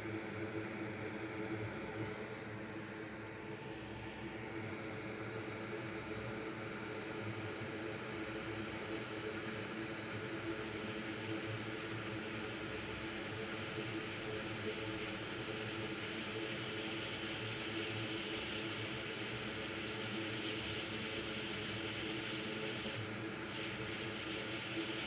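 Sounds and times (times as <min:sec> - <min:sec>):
hot air blower hissing: 0:16.3 - 0:25.0.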